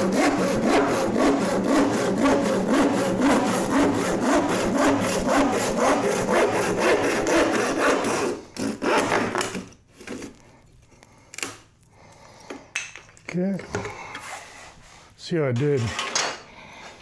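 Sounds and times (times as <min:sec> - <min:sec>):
hand saw cutting wood: 0:00.0 - 0:10.4.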